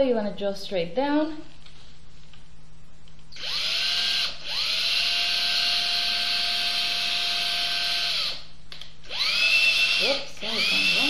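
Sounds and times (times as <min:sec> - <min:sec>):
electric drill whining: 0:03.4 - 0:11.0.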